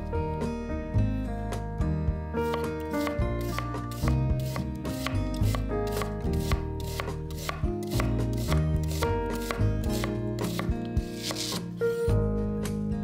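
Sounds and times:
background music: 0.0s - 13.0s
knife slicing onion: 2.4s - 11.8s.

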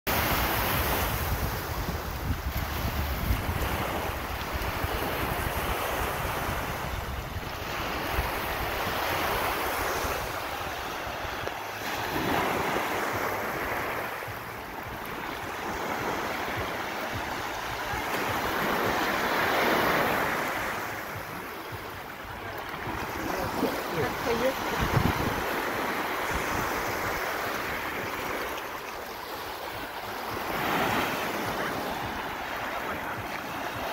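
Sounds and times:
small waves washing on shore: 0.1s - 33.9s
wind buffeting microphone: 0.2s - 12.2s, 21.1s - 27.3s.

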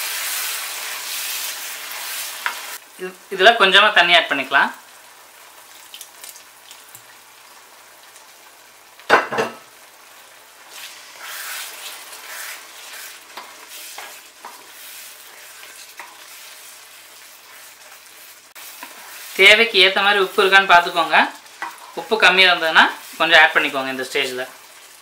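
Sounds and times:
faint sizzle: 0.0s - 25.0s
spatula scraping pan: 10.7s - 23.6s.

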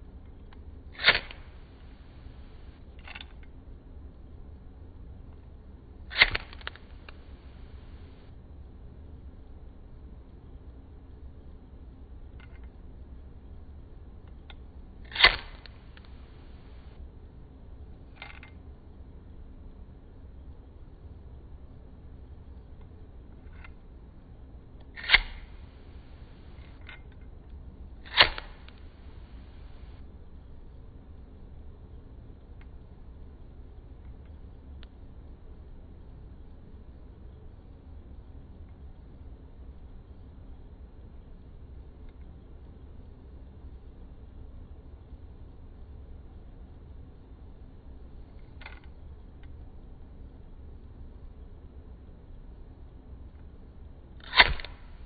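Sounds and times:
small clicks: 0.3s - 3.6s, 6.1s - 8.3s, 14.2s - 17.0s, 18.2s - 18.6s, 54.2s - 55.0s
lighter flint wheel striking: 1.0s - 3.5s, 6.1s - 8.2s, 14.5s - 16.8s, 24.9s - 27.0s, 28.1s - 29.8s, 54.2s - 55.0s
lighter strike click: 28.1s - 28.9s, 54.3s - 54.8s.

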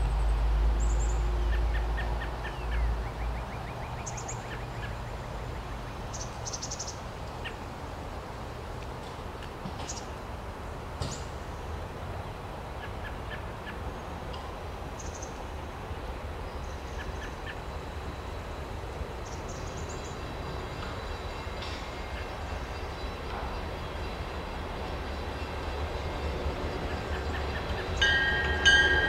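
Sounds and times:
locomotive engine rumble: 15.6s - 29.0s
birds chirping: 19.2s - 29.0s.

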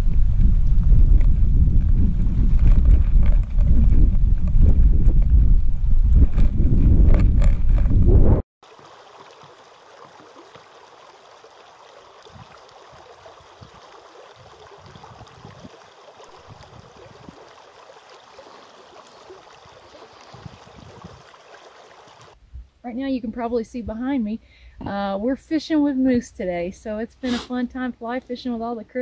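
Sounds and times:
wind buffeting microphone: 0.0s - 8.4s, 12.2s - 22.7s
stream running over rocks: 8.6s - 22.4s.

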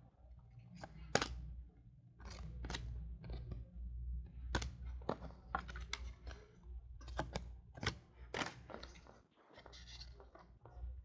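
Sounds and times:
steady low hum: 0.0s - 9.1s
cards snapping and sliding: 0.8s - 1.5s, 2.2s - 3.5s, 4.5s - 6.4s.

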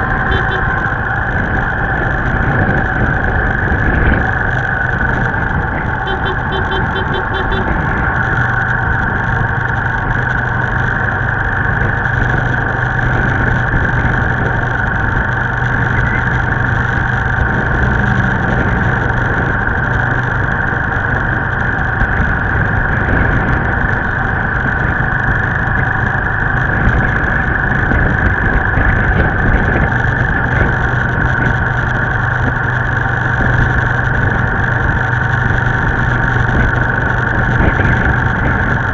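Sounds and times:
motorbike engine running: 0.0s - 38.9s
road and wind noise: 0.0s - 38.9s.

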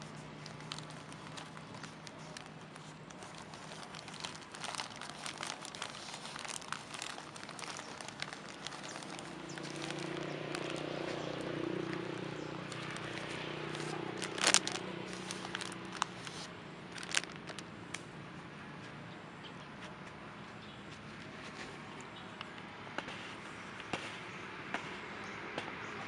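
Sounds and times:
plastic bag crinkling: 0.0s - 17.6s.

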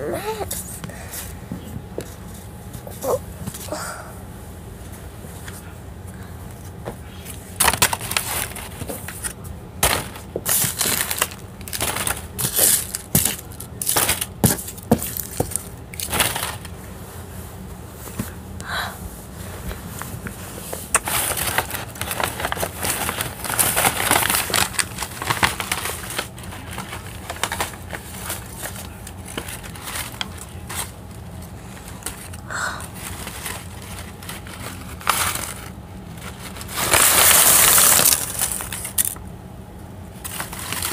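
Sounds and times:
crinkling and rustling: 6.6s - 18.4s, 19.3s - 39.2s, 40.1s - 40.9s.

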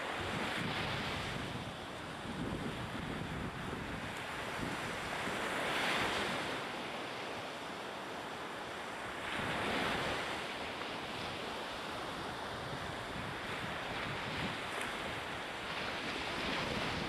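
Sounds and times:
wind buffeting microphone: 0.1s - 6.5s, 11.1s - 17.0s.

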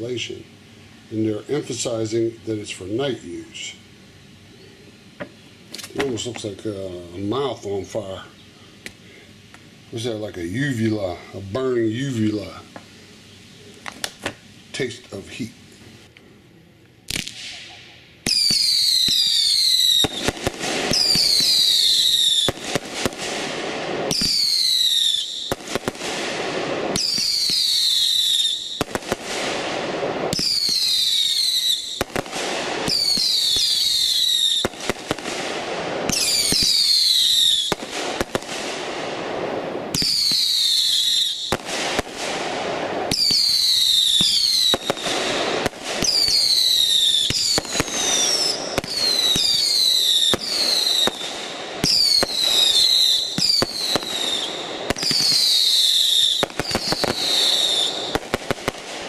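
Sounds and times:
firework pops and crackle: 5.2s - 6.5s, 13.8s - 14.4s, 17.1s - 59.0s
firework screaming whistles: 17.1s - 38.9s, 39.9s - 59.0s.

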